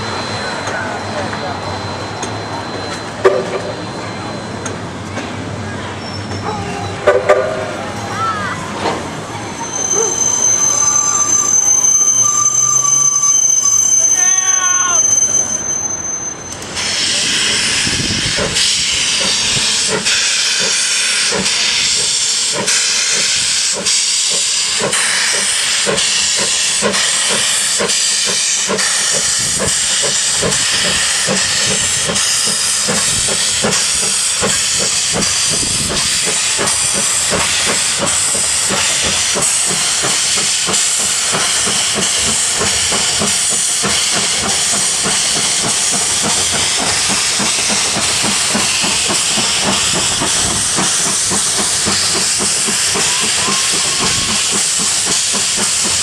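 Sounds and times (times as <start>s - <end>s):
steam locomotive hiss: 0.0s - 56.0s
locomotive exhaust beats: 16.8s - 56.0s.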